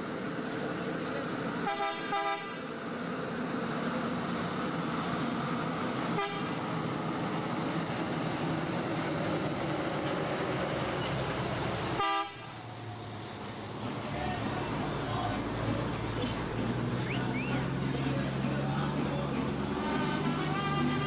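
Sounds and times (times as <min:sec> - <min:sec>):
bus engine running: 0:00.0 - 0:21.0
bus horn toots: 0:01.6 - 0:02.6, 0:06.2 - 0:06.6, 0:12.0 - 0:12.5, 0:19.8 - 0:21.0.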